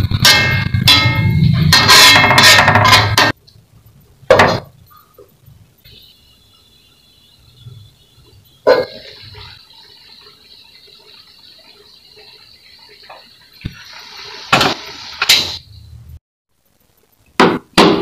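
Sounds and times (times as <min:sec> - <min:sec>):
metal spatula scraping wok: 0:00.0 - 0:03.4
metal lid clanking on wok: 0:00.1 - 0:03.4
food simmering hiss: 0:03.4 - 0:17.4.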